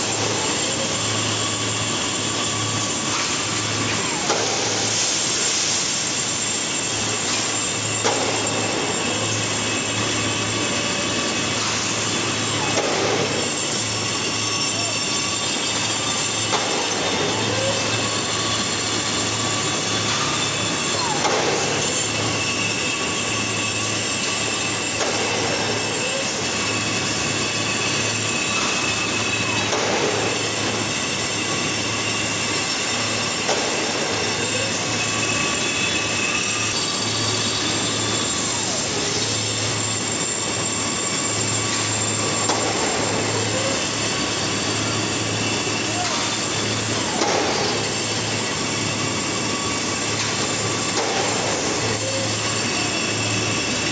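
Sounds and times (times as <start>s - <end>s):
high metallic whines: 0.0s - 53.9s
steel on steel squeals: 0.0s - 53.9s
steady mechanical din: 41.4s - 53.6s.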